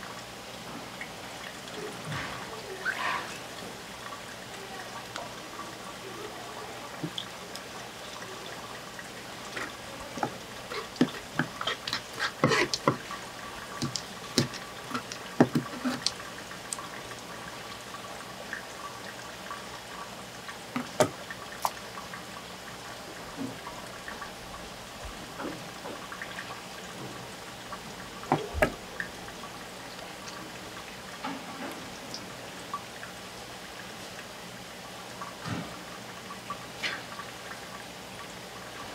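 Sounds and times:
water dripping and trickling: 0:00.0 - 0:38.9
wet clicks and knocks: 0:09.5 - 0:13.2, 0:13.8 - 0:16.2.

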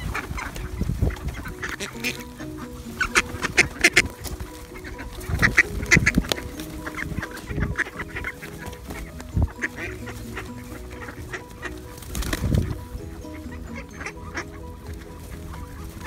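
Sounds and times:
birds pecking grain: 0:00.0 - 0:16.0
ducks quacking: 0:00.0 - 0:16.0
soft background music: 0:00.0 - 0:16.0
wing flutters: 0:00.0 - 0:16.0.

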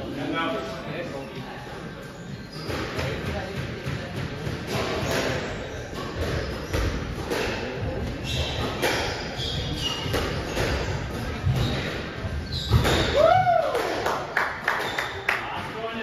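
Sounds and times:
shoes squeaking on court floor: 0:01.2 - 0:03.9, 0:04.7 - 0:13.2
squash ball smacking walls: 0:12.6 - 0:14.0.

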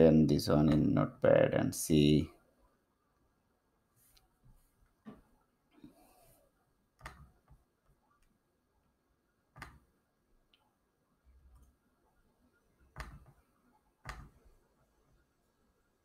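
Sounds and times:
computer mouse clicks: 0:07.0 - 0:07.6, 0:09.5 - 0:09.9, 0:12.9 - 0:13.4, 0:14.0 - 0:14.4.

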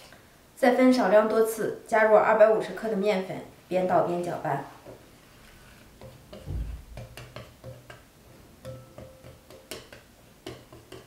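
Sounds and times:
dull thump: 0:06.4 - 0:07.1.

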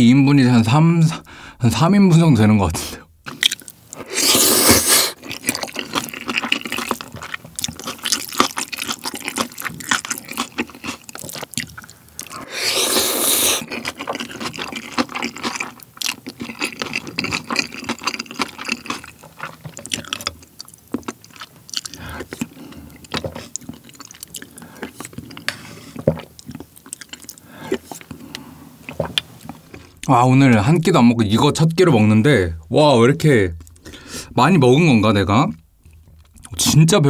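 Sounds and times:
wet chewing with mouth clicks: 0:03.2 - 0:30.1
slurping noodles: 0:04.0 - 0:07.0, 0:12.2 - 0:15.6.

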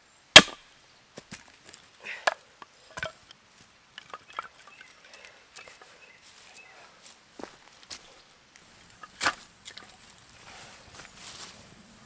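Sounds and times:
hatchet chopping wood: 0:00.4 - 0:00.6
wood pieces knocking: 0:04.0 - 0:04.8.

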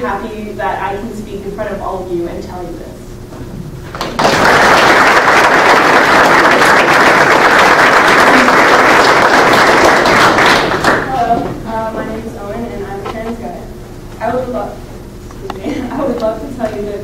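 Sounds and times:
crowd applauding: 0:04.0 - 0:11.2.

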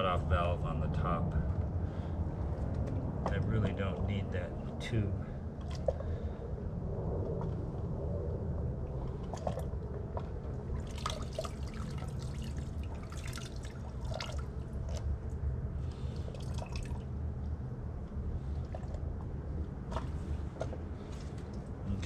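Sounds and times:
steady low rumble: 0:00.0 - 0:22.0
water dripping and splashing: 0:05.6 - 0:06.2, 0:08.9 - 0:17.1, 0:18.4 - 0:21.8.

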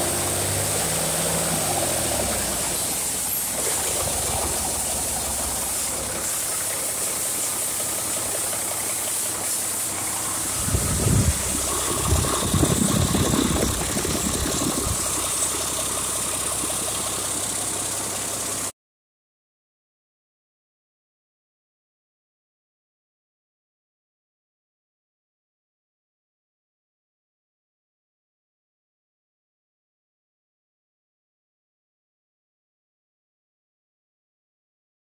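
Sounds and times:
diesel engine running: 0:00.0 - 0:18.7
constant high whine: 0:02.2 - 0:18.2
low rumbles: 0:10.0 - 0:17.7.

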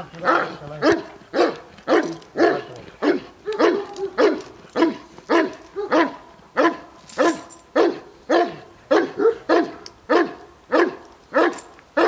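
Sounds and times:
dog barking: 0:00.3 - 0:06.9, 0:07.8 - 0:11.6.

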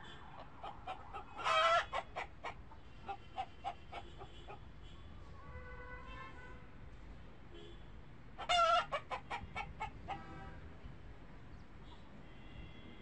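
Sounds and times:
chicken clucking: 0:00.3 - 0:04.6, 0:08.4 - 0:10.3.

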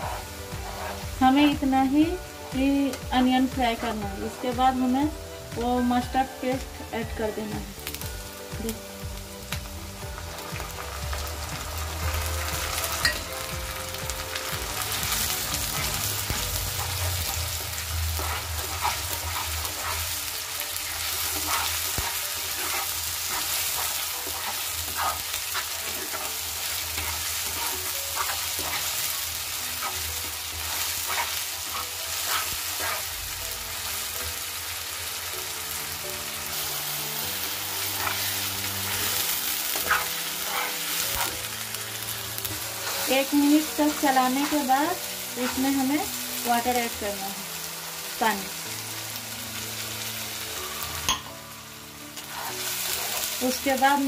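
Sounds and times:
spatula scraping a pan: 0:00.0 - 0:01.2, 0:15.0 - 0:33.2, 0:37.4 - 0:46.1, 0:52.1 - 0:53.8
onions sizzling in hot oil: 0:00.0 - 0:54.0.

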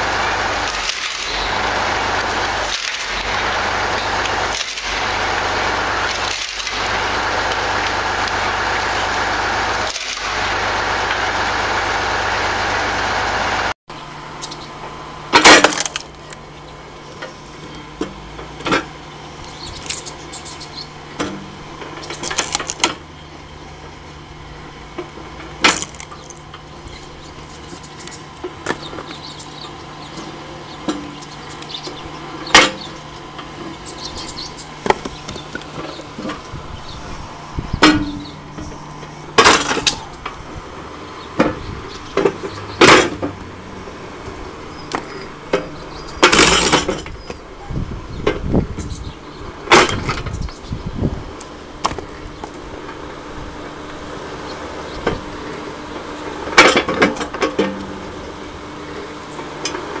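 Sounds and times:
log splitter motor hum: 0:00.0 - 1:00.0
wood splitting cracks: 0:00.4 - 0:11.2, 0:15.3 - 0:16.4, 0:22.1 - 0:23.0, 0:25.6 - 0:27.1, 0:49.7 - 0:50.3, 0:51.4 - 0:52.6
split wood pieces dropping: 0:00.6 - 0:01.6, 0:02.2 - 0:03.4, 0:04.0 - 0:05.2, 0:06.0 - 0:07.6, 0:15.4 - 0:16.4, 0:22.1 - 0:23.0, 0:25.6 - 0:26.4, 0:39.4 - 0:40.3.

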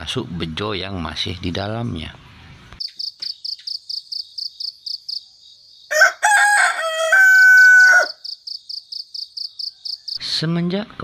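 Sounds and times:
crickets chirping: 0:02.8 - 0:10.2
rooster crowing: 0:05.9 - 0:08.3.

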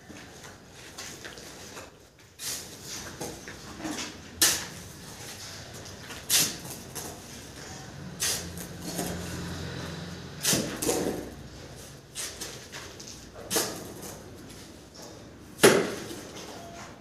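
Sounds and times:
shovel scraping through wet mortar: 0:08.1 - 0:09.2.

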